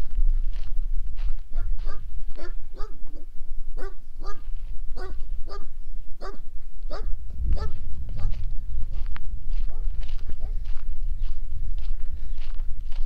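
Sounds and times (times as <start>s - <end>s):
steady low rumble: 0.0s - 13.0s
dog barking: 1.6s - 4.4s, 5.0s - 8.3s.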